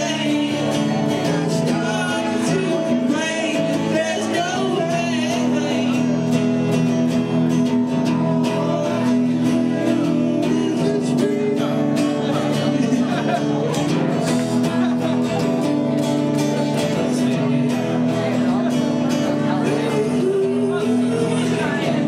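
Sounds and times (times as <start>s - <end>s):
person singing: 0.0s - 22.0s
strummed guitar: 0.0s - 22.0s.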